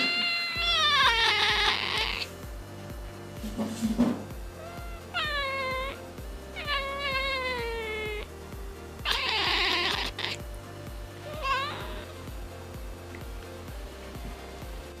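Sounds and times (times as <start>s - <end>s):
cat yowling: 0.0s - 2.3s, 4.6s - 6.0s, 6.6s - 8.3s, 9.0s - 10.4s, 11.2s - 12.1s
background music with beat: 0.0s - 15.0s.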